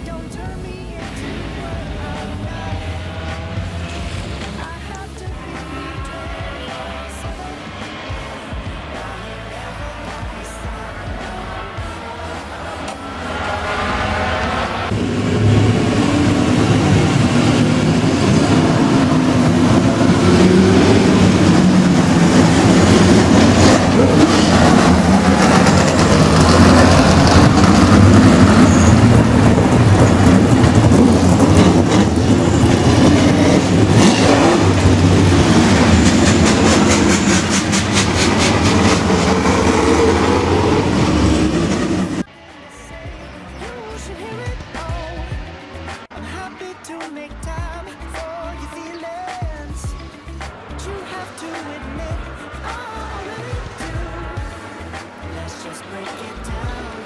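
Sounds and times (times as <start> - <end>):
race cars driving past: 0.9 - 44.4.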